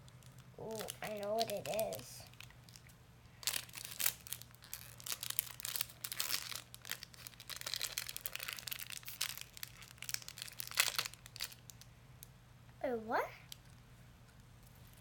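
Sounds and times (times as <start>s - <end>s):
toy wrapper crumpling and tearing: 0.2s - 11.9s.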